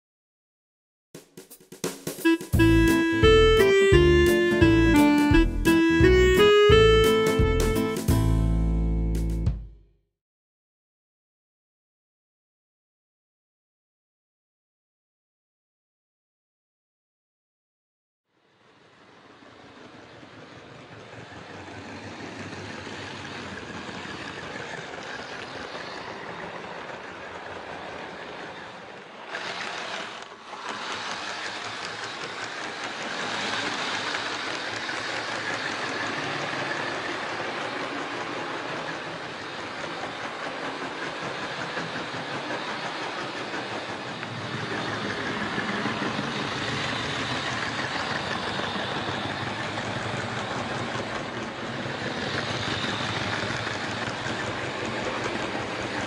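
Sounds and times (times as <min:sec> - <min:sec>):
model train running on track: 0:02.1 - 0:08.7, 0:18.4 - 0:56.0.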